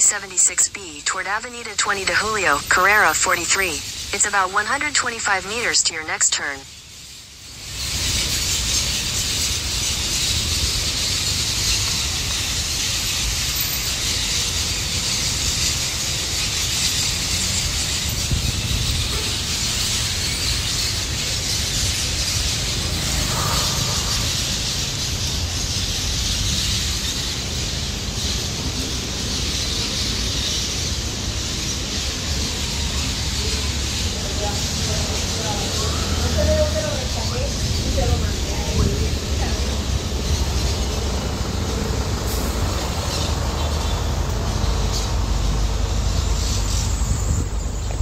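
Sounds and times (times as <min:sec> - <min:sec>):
low rumble of street traffic: 0:00.0 - 0:48.0
high-pitched chirring chorus: 0:22.0 - 0:25.3.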